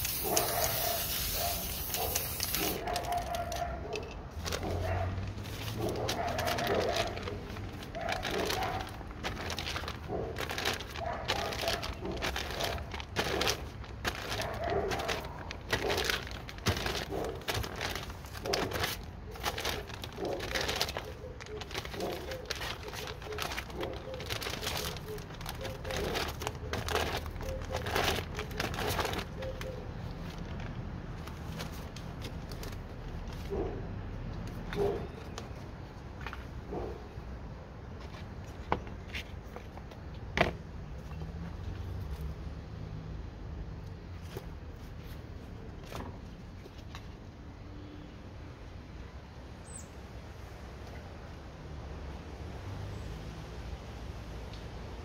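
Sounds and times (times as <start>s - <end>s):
aerosol spray can hissing: 0.0s - 2.8s
magazine page crinkling: 0.0s - 3.7s, 4.3s - 33.6s.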